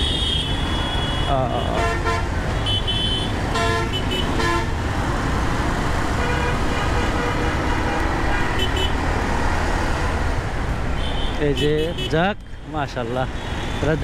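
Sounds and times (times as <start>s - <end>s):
vehicle horns honking: 0.0s - 4.8s, 6.2s - 9.0s, 10.9s - 12.2s
low rumble of traffic: 0.0s - 14.0s.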